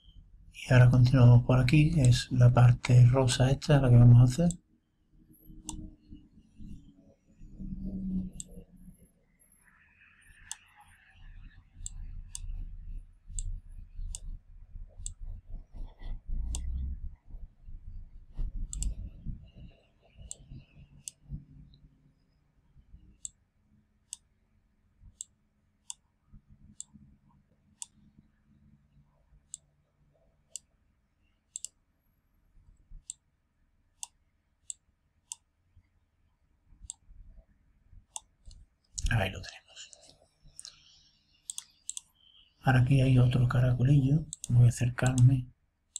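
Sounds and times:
dull low thumps and rubbing: 14.8 - 19.7
mouse button clicking: 18.7 - 19.0, 41.5 - 42.4.

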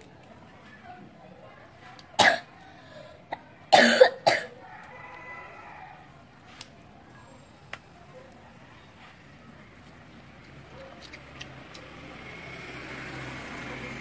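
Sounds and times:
boy coughing: 2.2 - 2.5, 3.3 - 4.6.

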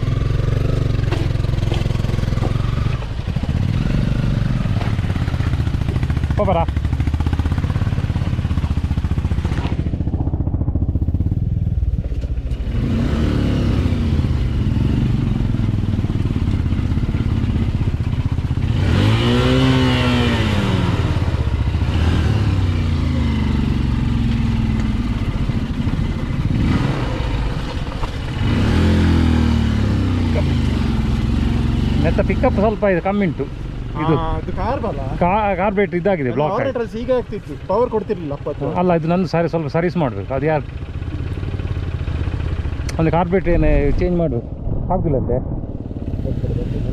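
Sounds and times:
motorcycle engine revving: 0.0 - 46.9.

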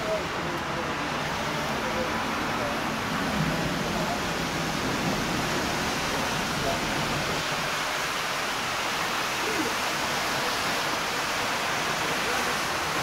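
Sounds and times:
heavy rain pouring: 0.0 - 13.0.

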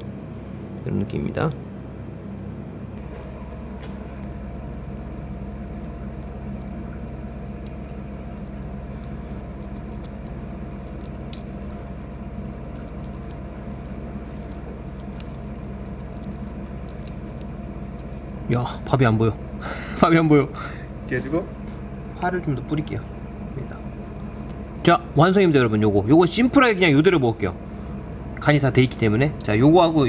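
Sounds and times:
steady low hum: 0.0 - 30.0
chopsticks squishing food: 4.2 - 18.5.

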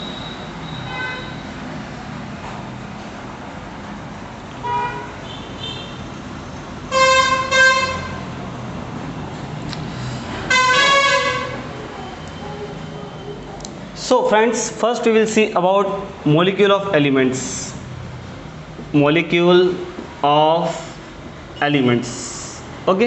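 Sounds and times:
vehicle horns honking: 0.0 - 1.6, 4.6 - 6.1, 6.9 - 8.3, 10.5 - 11.7.

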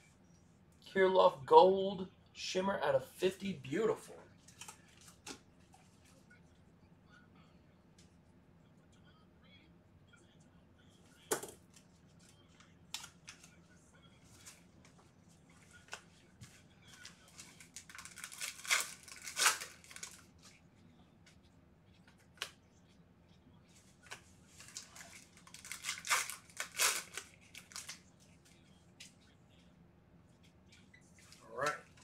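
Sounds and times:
card wrappers tearing and crinkling: 17.0 - 20.3, 24.1 - 28.0.

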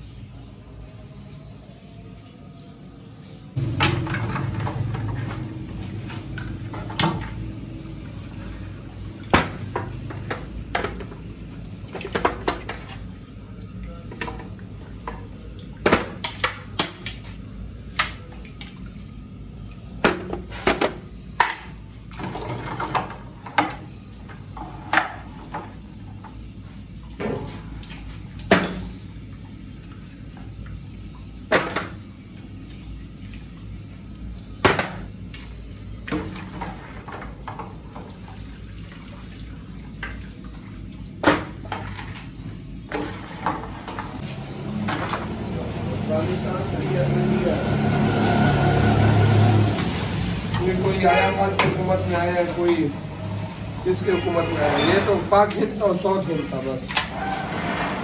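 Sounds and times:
steel trays and pots clanking: 53.8 - 58.0.

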